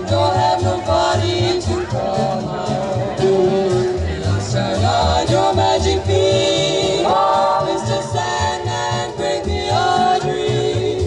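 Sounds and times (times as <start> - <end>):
swing band playing: 0.0 - 11.0
female vocal trio singing harmony: 4.6 - 11.0.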